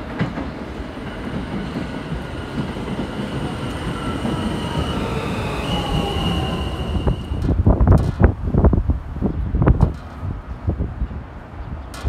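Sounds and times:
subway train rumble: 0.0s - 12.0s
high steady squeal: 2.2s - 7.5s
whining tones sliding down: 2.5s - 7.6s.

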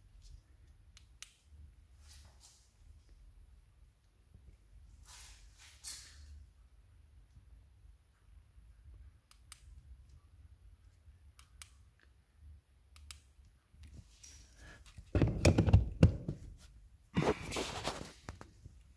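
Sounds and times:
rustling and knocking: 15.1s - 18.6s.

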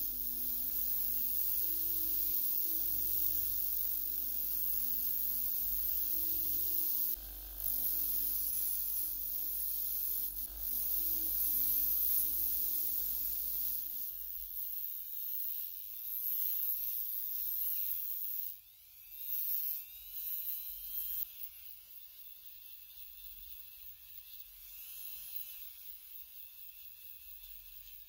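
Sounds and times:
wire brush grinder scrubbing metal: 0.0s - 14.8s
rotary tool sanding metal: 0.0s - 28.0s.

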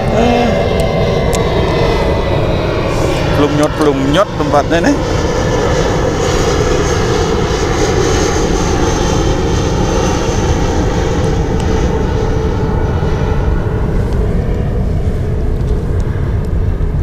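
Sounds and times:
aircraft engine rumble: 0.0s - 17.0s
high engine whine: 0.0s - 17.0s.

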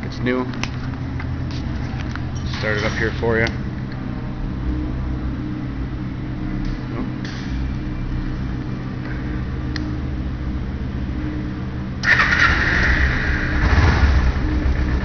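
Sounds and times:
motorcycle engine starting and running: 12.0s - 15.0s.

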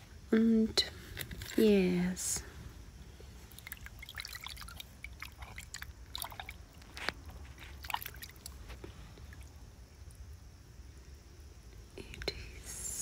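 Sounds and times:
water splashing in plastic tub: 3.5s - 9.6s.

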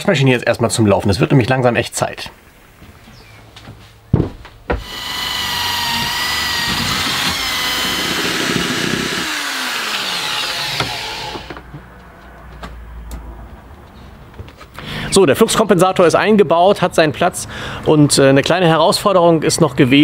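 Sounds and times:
knocks: 4.2s - 5.2s
electric drill whining: 4.8s - 11.6s.

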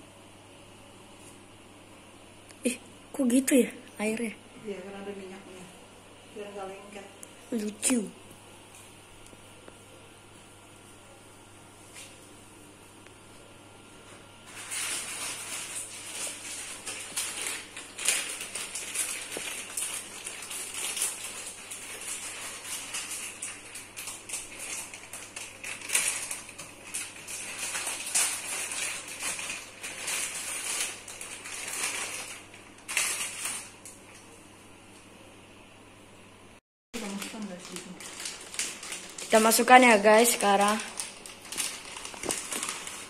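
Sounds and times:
water and oil crackling in wok: 14.5s - 34.2s, 37.0s - 43.0s.

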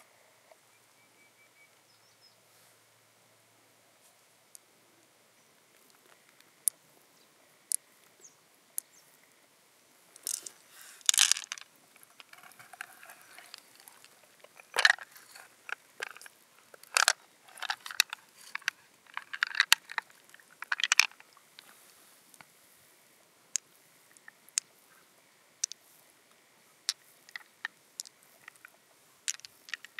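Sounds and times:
pearls clicking on shell: 10.2s - 21.3s, 26.9s - 29.9s.

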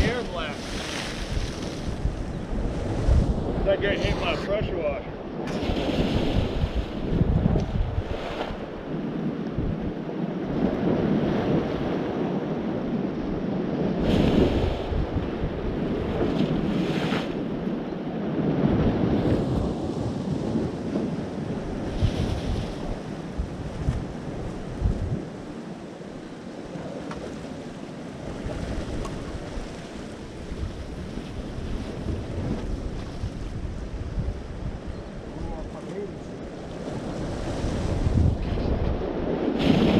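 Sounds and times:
surf surging against rocks: 0.0s - 7.3s
surf washing over rocks: 0.0s - 39.9s
wind on microphone: 0.0s - 39.9s.

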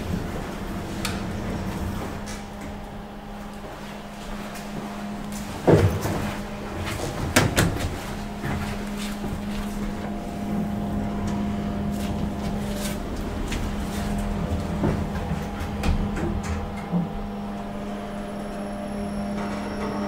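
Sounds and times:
elevator hum: 0.0s - 20.0s.

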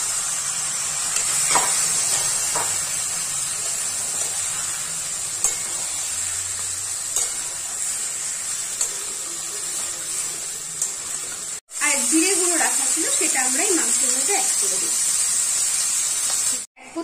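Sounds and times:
meat sizzling in oil: 0.0s - 16.7s
spatula knocking pan: 1.2s - 2.9s.

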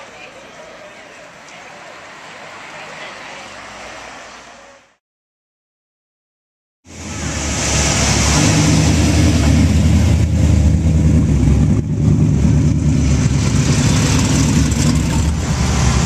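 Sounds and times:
car engines cruising past: 1.7s - 5.0s, 6.9s - 16.0s
supercharged car engine passing: 6.9s - 16.0s.

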